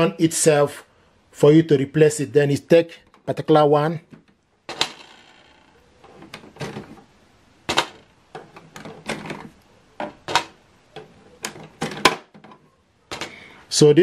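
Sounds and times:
plastic scraping and rattling: 0:04.1 - 0:07.1, 0:07.7 - 0:13.4.

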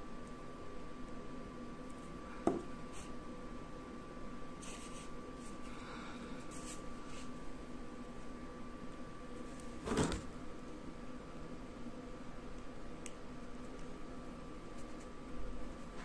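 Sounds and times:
faint steady hum: 0:00.0 - 0:16.0
rustles and scrapes on paper: 0:04.6 - 0:05.7, 0:06.4 - 0:07.4, 0:14.7 - 0:15.2.

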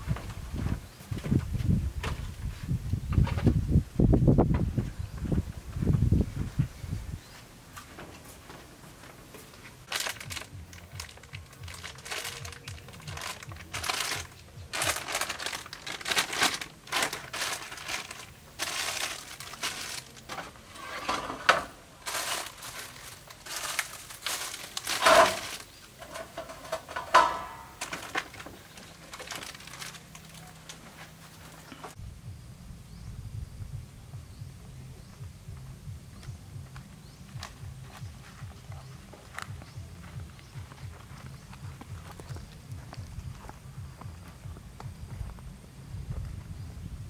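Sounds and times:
plastic bags crinkling: 0:09.8 - 0:21.4, 0:22.0 - 0:31.9.

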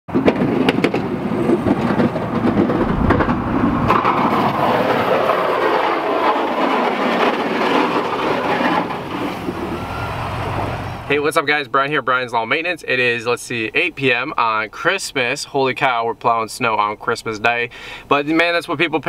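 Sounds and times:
sharp knocks: 0:00.1 - 0:09.6
snow plow blade scraping pavement: 0:00.1 - 0:11.1
pickup truck engine running: 0:00.1 - 0:11.2.

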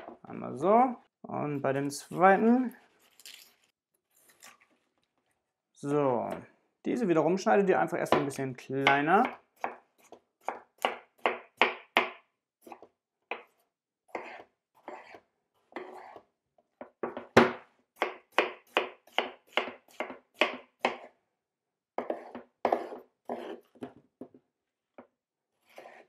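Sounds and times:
knife chopping on wooden board: 0:08.1 - 0:16.2, 0:16.8 - 0:21.1, 0:22.0 - 0:23.9.

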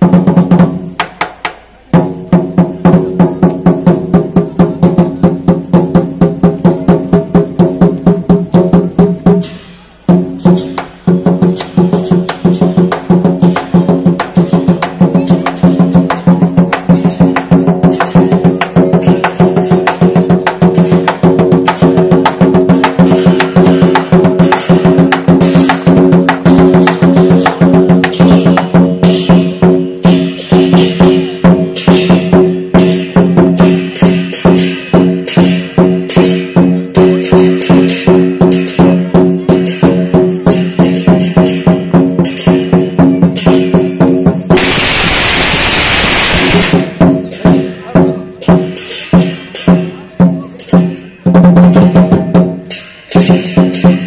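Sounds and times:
drum beaten in fast rhythm: 0:00.0 - 0:54.0.

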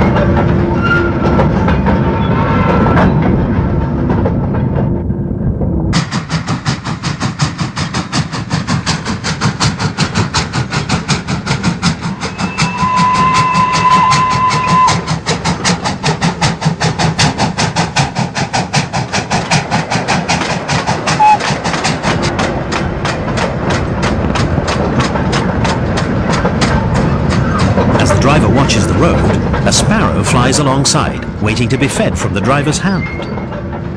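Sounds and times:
steam locomotive chuffing: 0:06.0 - 0:33.9
steam whistle: 0:12.1 - 0:15.1
short tone: 0:21.2 - 0:21.4.

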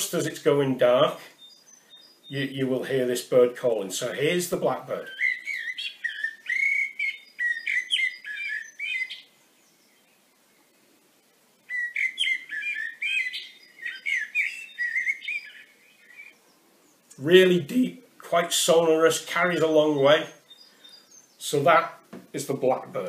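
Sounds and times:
blackbird song from a phone: 0:01.3 - 0:02.6, 0:05.0 - 0:10.3, 0:11.6 - 0:17.0, 0:19.2 - 0:22.1.

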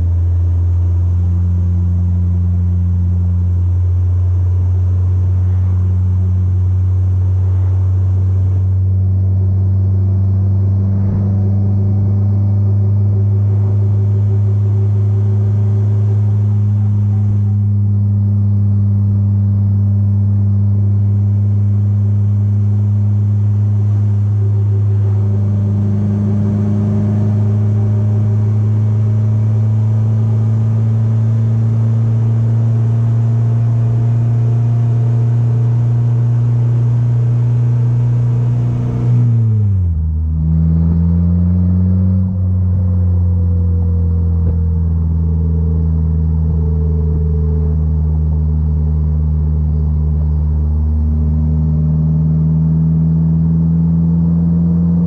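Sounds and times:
car engine cruising: 0:00.0 - 0:55.0.

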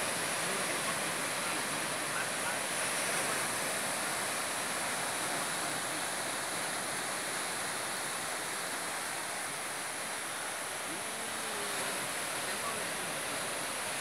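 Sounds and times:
surf breaking on rocks: 0:00.0 - 0:07.6.

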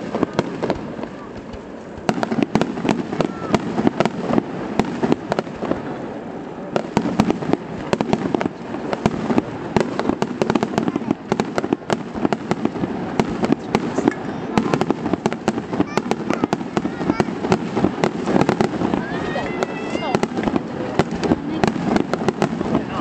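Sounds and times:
fireworks bursting: 0:00.0 - 0:23.0.

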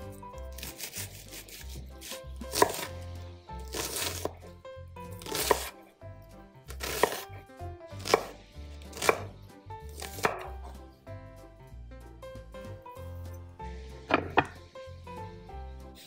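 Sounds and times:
knife chopping on cutting board: 0:00.4 - 0:03.0, 0:03.6 - 0:05.8, 0:06.7 - 0:10.8, 0:14.1 - 0:14.6.

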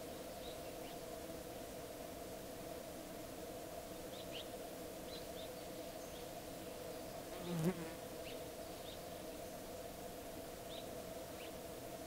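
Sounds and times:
flying insect buzzing: 0:07.3 - 0:08.4.

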